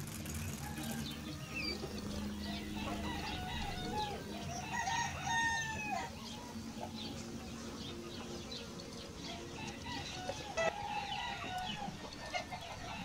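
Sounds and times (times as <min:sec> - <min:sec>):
rooster crowing: 0:00.6 - 0:06.7, 0:09.2 - 0:13.0.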